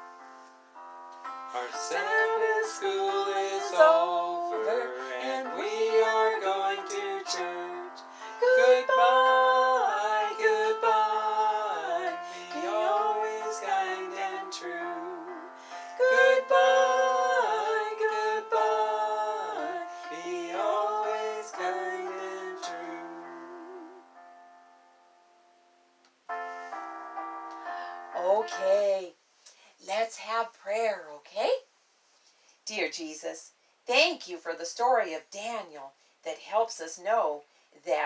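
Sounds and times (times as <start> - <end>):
instrumental accompaniment: 0.0 - 29.0
woman singing children's song: 1.7 - 11.0, 11.6 - 15.4, 19.4 - 23.6, 28.2 - 29.1.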